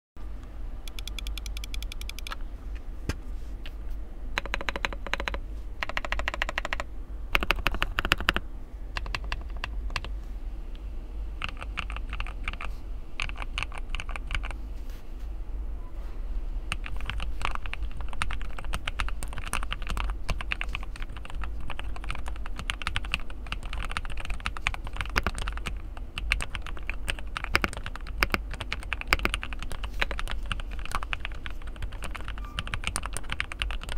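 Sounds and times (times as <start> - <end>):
mechanical keyboard typing: 0.9 - 2.4, 4.4 - 8.4, 9.0 - 10.1, 11.4 - 14.6, 16.7 - 33.9.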